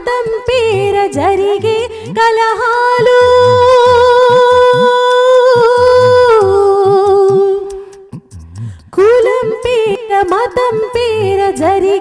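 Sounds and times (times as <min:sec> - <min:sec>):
woman singing: 0:00.0 - 0:08.2, 0:08.9 - 0:12.0
pitch-bending low drum beats: 0:03.0 - 0:12.0.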